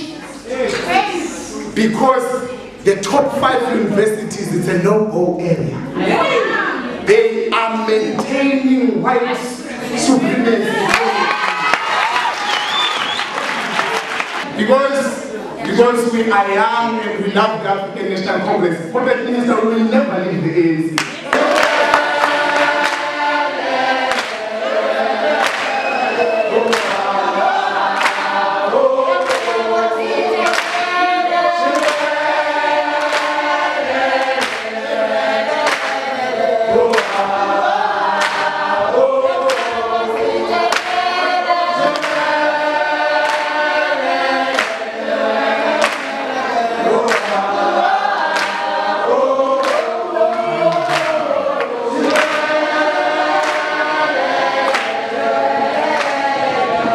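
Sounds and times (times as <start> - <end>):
steady hand claps: 10.9 - 14.5, 21.0 - 46.3, 46.9 - 56.9
crowd singing in chorus: 21.0 - 56.9.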